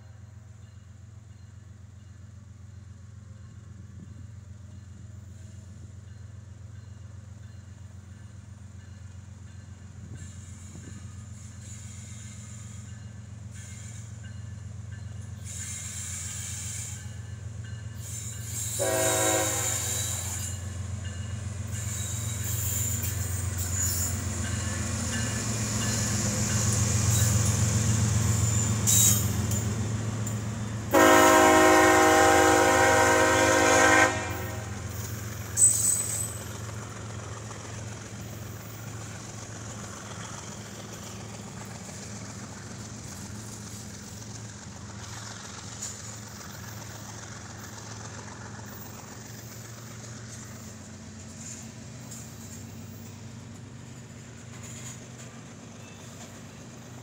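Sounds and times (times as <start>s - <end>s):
diesel locomotive engines rumbling: 0.0s - 57.0s
train horn blast: 18.8s - 20.4s, 30.9s - 34.8s.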